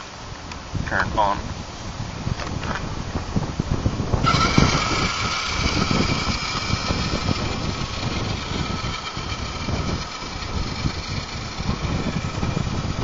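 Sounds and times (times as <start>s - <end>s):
toy car electric motor whining: 4.2s - 13.0s.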